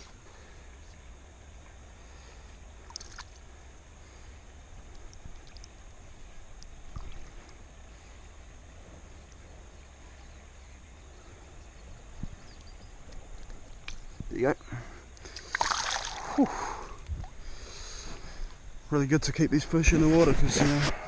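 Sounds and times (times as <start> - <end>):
small splashes and knocks: 2.8 - 3.4, 15.3 - 16.2
flowing river water: 15.2 - 18.7.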